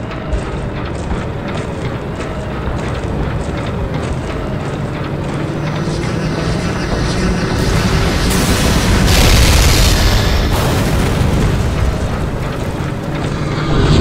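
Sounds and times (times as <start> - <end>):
mechanical drone of vehicles: 0.0 - 14.0.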